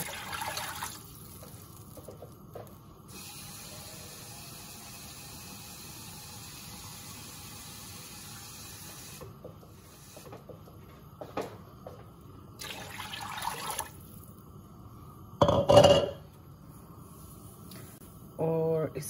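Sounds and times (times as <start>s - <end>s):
water poured into a pot: 0.0s - 2.0s, 12.6s - 14.4s
water running from tap: 0.0s - 2.0s, 3.1s - 9.2s, 12.6s - 14.1s.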